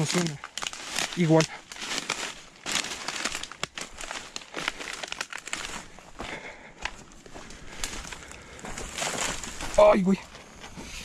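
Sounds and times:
stems snapping: 0.0s - 6.0s, 6.8s - 7.0s
footsteps crunching dry leaves: 0.0s - 11.0s.

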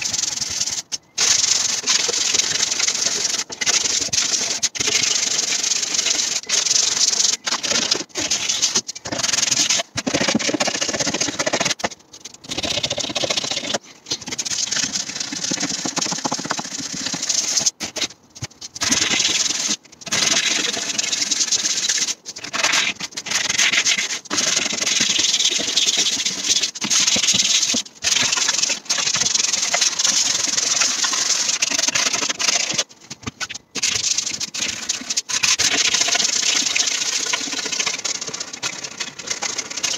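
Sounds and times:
sandpaper rubbing on wood: 0.0s - 11.9s, 12.5s - 18.1s, 18.8s - 32.9s.

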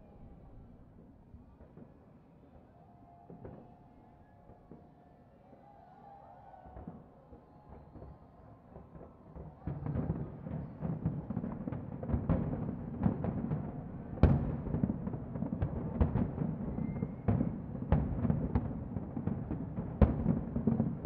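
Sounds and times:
distant fireworks bursting: 6.7s - 21.0s.

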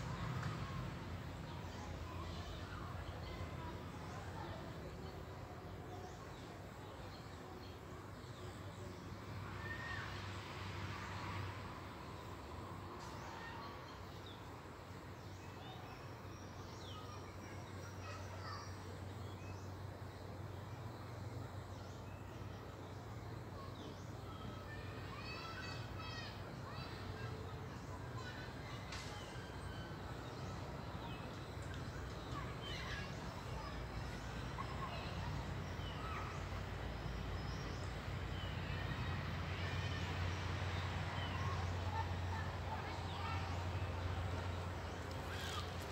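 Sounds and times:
small birds chirping: 13.0s - 45.9s.

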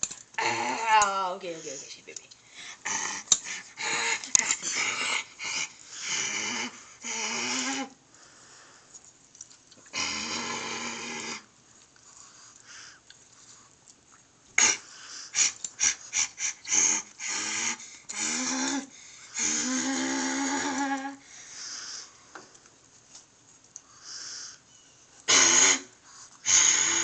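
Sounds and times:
small dog growling and snarling: 0.4s - 1.7s, 2.6s - 8.0s, 9.9s - 11.5s, 14.6s - 22.0s, 25.3s - 27.0s.

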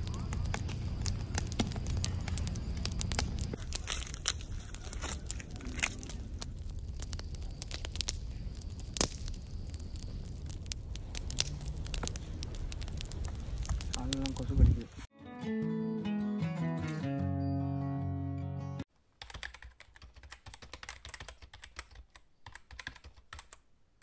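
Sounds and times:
logs crackling and popping: 0.0s - 15.1s
low rumble of flames: 0.0s - 15.1s.

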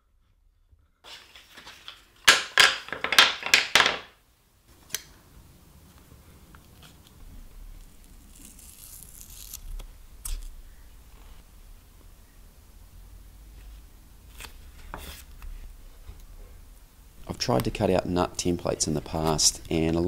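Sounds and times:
tape handling: 1.1s - 4.1s, 7.8s - 10.5s.

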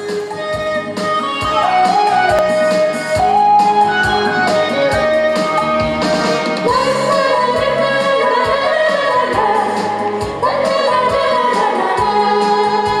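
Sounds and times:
music accompaniment with steady beat: 0.0s - 13.0s
woman singing into a microphone: 6.6s - 13.0s.

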